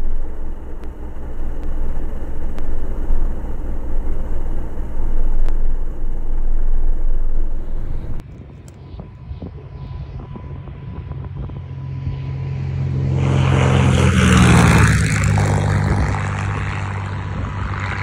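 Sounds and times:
piston aircraft engine idling: 0:00.0 - 0:18.0.

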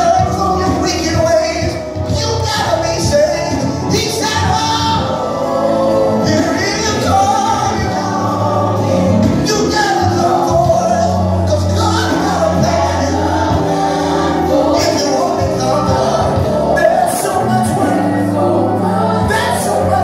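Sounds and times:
band playing: 0:00.0 - 0:20.0
man singing lead: 0:00.0 - 0:20.0
women singing backing vocals: 0:04.6 - 0:20.0.

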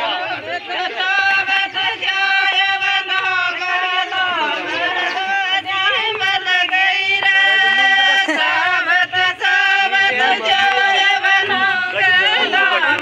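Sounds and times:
women singing folk song: 0:00.0 - 0:13.0
hand claps: 0:02.0 - 0:03.8, 0:04.8 - 0:10.6, 0:12.5 - 0:13.0.

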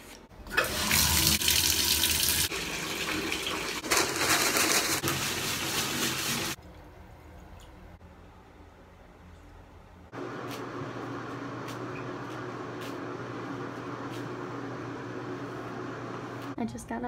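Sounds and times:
water gushing into bathtub: 0:00.5 - 0:06.6.

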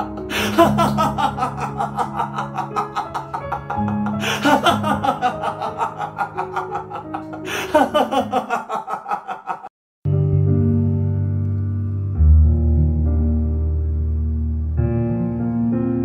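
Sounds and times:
soft piano piece: 0:00.0 - 0:08.6, 0:10.1 - 0:16.0
man laughing loudly: 0:00.0 - 0:09.7.

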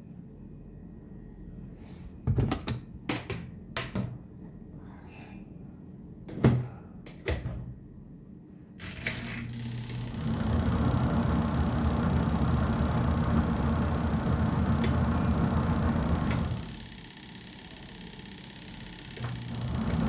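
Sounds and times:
washing machine motor humming: 0:08.8 - 0:20.0.

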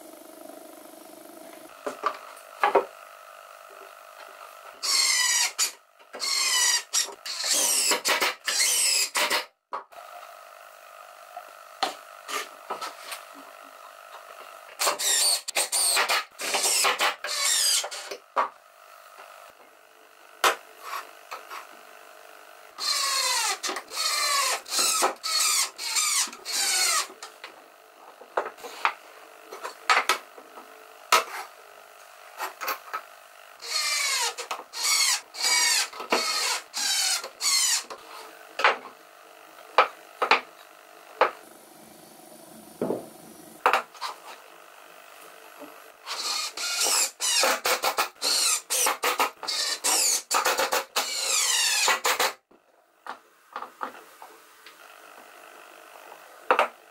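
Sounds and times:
knocks of wood and tools: 0:01.8 - 0:02.9, 0:18.1 - 0:18.6, 0:39.8 - 0:40.5, 0:42.8 - 0:43.9, 0:56.5 - 0:56.8
impact driver driving screws: 0:04.8 - 0:09.5, 0:14.8 - 0:18.2, 0:22.8 - 0:27.2, 0:33.6 - 0:38.0, 0:46.1 - 0:52.4.

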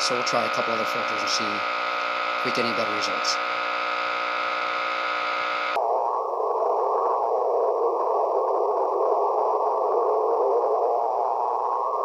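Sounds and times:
faint interference buzz: 0:00.0 - 0:05.8
loud rushing radio hiss: 0:00.0 - 0:05.8.

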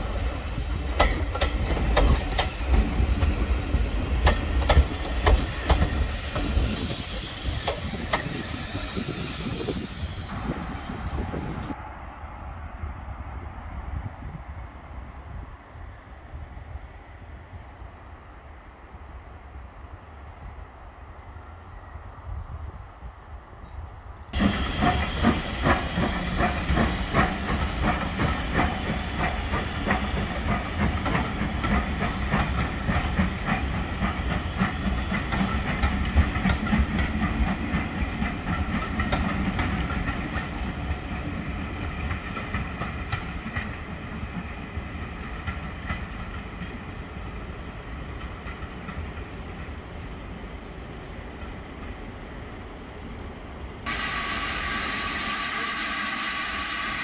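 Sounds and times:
steam train passing: 0:00.0 - 0:23.1, 0:24.0 - 0:57.0
hissing steam: 0:24.4 - 0:41.9, 0:53.9 - 0:57.0.

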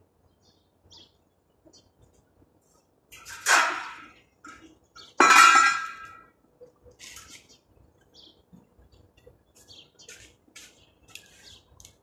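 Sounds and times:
steel tube clanging: 0:03.1 - 0:06.3.

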